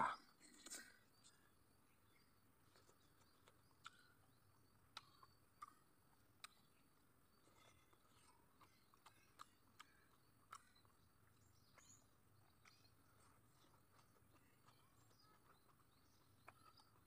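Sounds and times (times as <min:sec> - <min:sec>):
person chewing food: 0:02.6 - 0:17.0
mouth smacks and clicks: 0:04.9 - 0:05.8, 0:06.4 - 0:06.6, 0:07.4 - 0:11.0.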